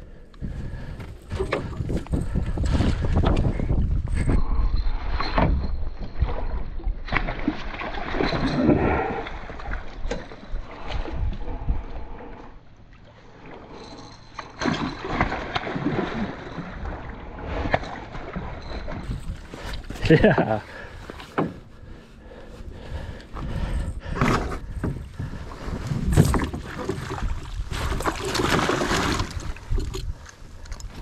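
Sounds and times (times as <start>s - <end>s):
fish thrashing and splashing: 7.1s - 10.9s, 14.4s - 20.9s, 24.3s - 30.2s.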